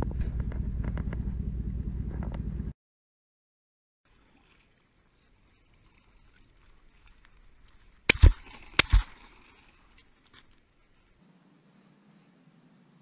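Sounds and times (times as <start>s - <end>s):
wind noise: 0.0s - 2.7s
faint water: 4.0s - 13.0s
shotgun blasts: 8.1s - 9.2s.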